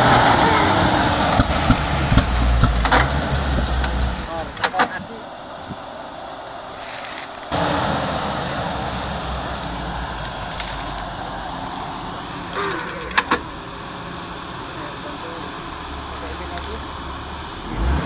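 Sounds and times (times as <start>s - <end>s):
engine idling: 0.0s - 18.0s
sharp metallic clicks: 0.4s - 5.9s, 11.7s - 13.6s.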